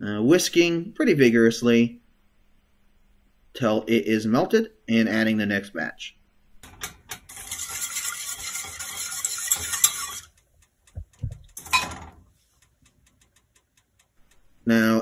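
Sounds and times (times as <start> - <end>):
whisk scraping metal saucepan: 6.7 - 10.4.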